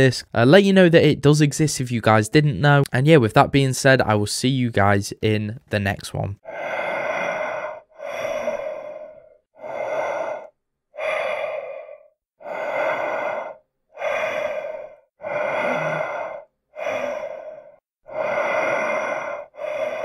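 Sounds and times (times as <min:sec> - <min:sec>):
person breathing: 0:06.4 - 0:20.0.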